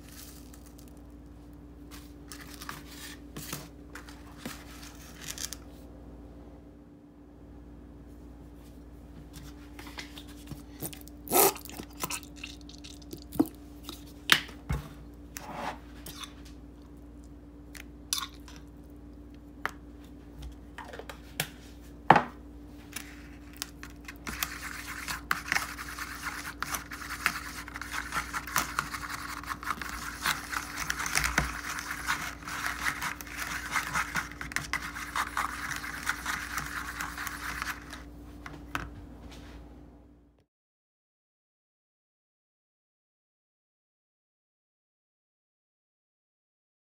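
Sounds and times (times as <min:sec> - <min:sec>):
fork scratching in a paper bowl: 0:23.0 - 0:38.0
spoon scraping a glass jar: 0:24.3 - 0:38.0.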